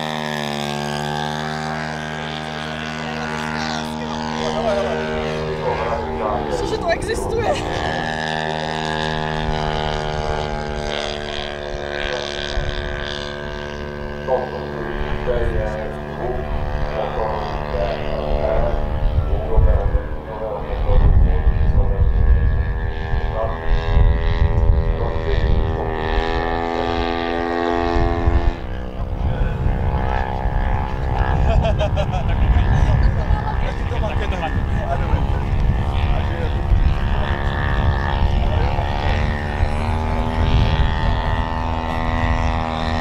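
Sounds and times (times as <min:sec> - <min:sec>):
low rumble: 0:00.0 - 0:43.0
model plane engine droning: 0:00.0 - 0:43.0.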